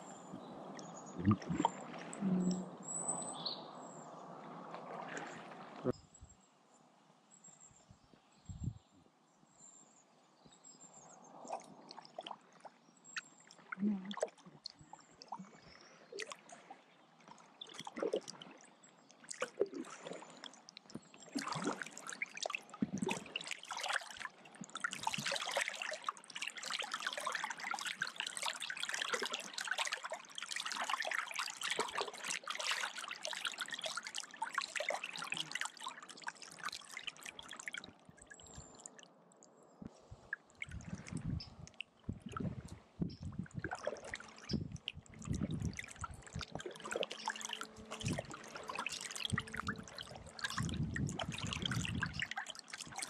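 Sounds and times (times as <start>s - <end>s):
kayak paddle splashing: 0.0s - 2.4s, 4.3s - 5.9s, 11.3s - 38.9s, 40.2s - 53.0s
water dripping off paddle: 4.8s - 5.9s, 11.4s - 39.5s, 40.3s - 53.0s.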